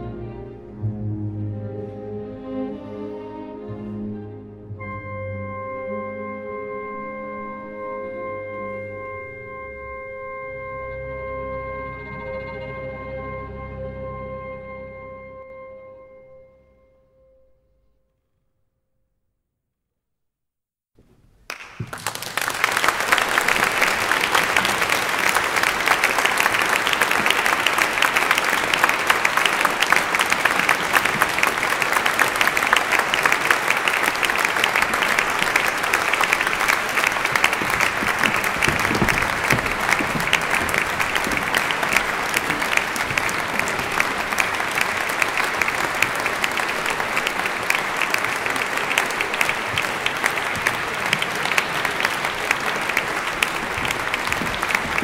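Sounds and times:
audience applauding: 21.5 - 55.0.

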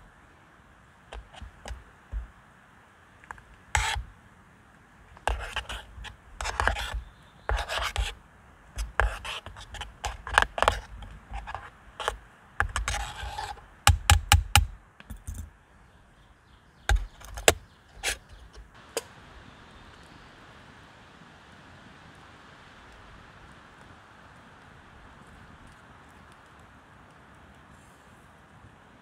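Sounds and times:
scraping and rubbing strokes: 1.1 - 2.3, 3.2 - 4.1, 5.1 - 14.0, 16.9 - 18.7.

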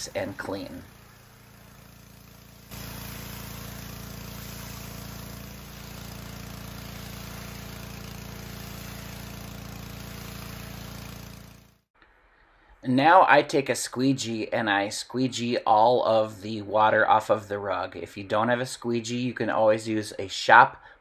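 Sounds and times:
water spray hissing: 0.0 - 11.7
pressure washer engine hum: 0.0 - 11.8.

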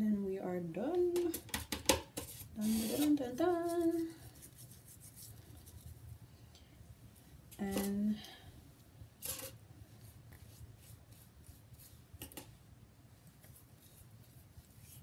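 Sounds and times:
scraping strokes: 2.2 - 6.0.

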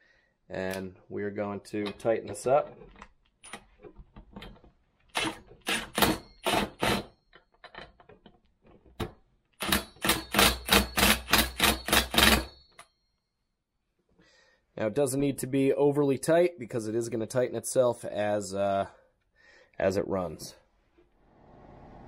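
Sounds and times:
impact wrench hammering: 5.2 - 7.1, 9.6 - 12.8.

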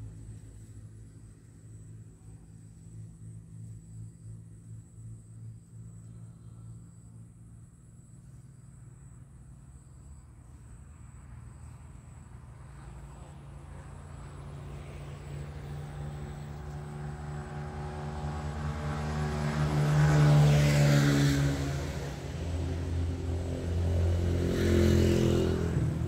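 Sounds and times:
passing vehicle engine: 0.0 - 26.0.

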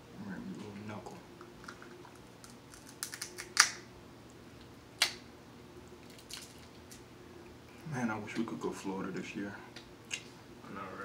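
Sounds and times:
crab shell cracking by hand: 1.4 - 3.8, 5.0 - 5.2, 5.9 - 7.0.

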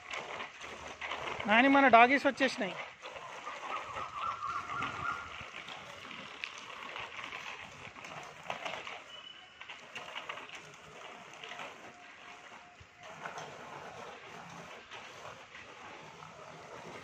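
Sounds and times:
outdoor street ambience: 0.0 - 17.0
birds calling: 3.2 - 5.6.

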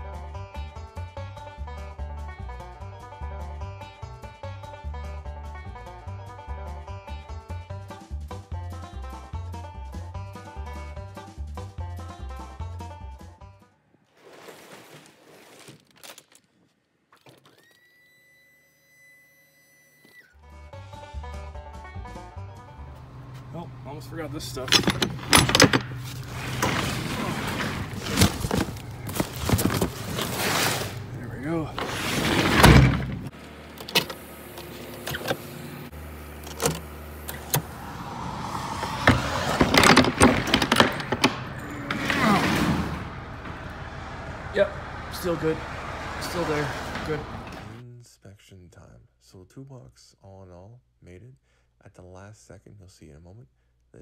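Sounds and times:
knocks and handling noise: 24.5 - 35.4, 38.8 - 43.8
rustling: 25.1 - 33.3.

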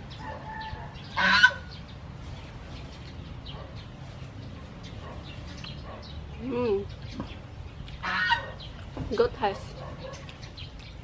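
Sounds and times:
small birds chirping: 0.0 - 11.0
bird squawk: 0.5 - 1.8, 8.0 - 8.7.

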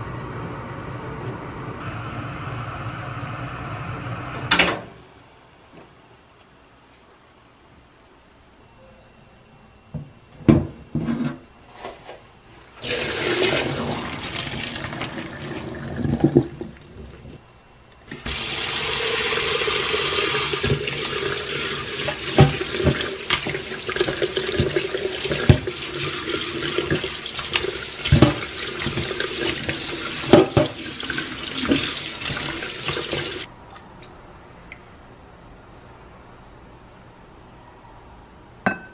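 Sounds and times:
tap water running into colander: 12.8 - 17.4, 18.1 - 33.5.

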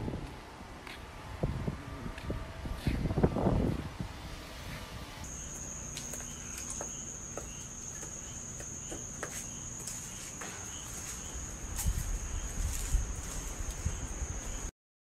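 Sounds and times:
insects trilling: 5.2 - 14.7.

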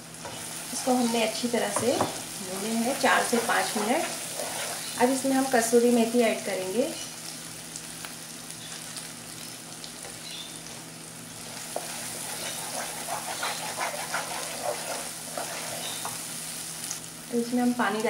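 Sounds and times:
masala sizzling in oil: 0.0 - 18.0
wooden spatula scraping pan: 0.2 - 5.0, 11.4 - 16.2.

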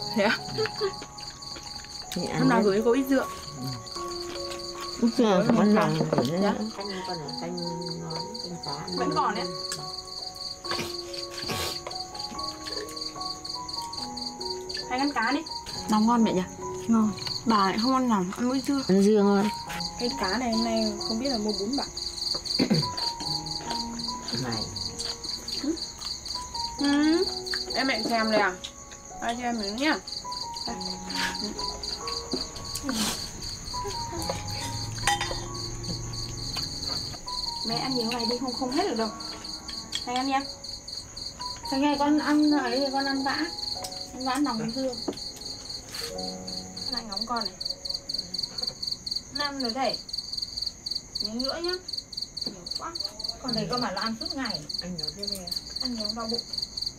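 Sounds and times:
crickets chirping: 0.0 - 56.9
soft background music: 0.0 - 56.9
chopsticks and bowls clicking: 26.0 - 26.4.

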